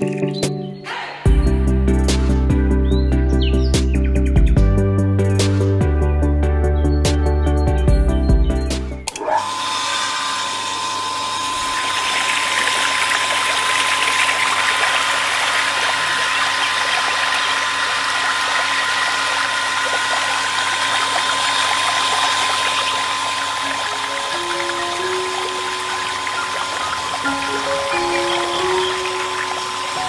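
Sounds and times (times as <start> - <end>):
electric pump motor whining: 9.0 - 30.0
water splashing into plastic tank: 11.7 - 27.4.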